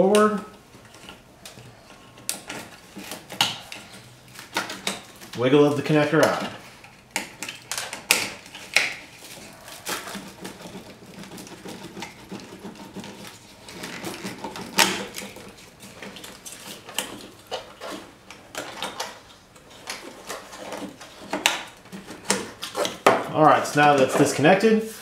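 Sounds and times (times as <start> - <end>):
plastic connectors clicking and rattling: 6.1 - 24.2.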